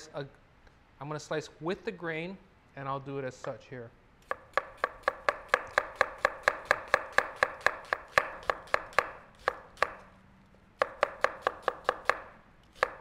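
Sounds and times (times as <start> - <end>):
knife chopping onion on wooden board: 4.2 - 10.1, 10.8 - 13.0.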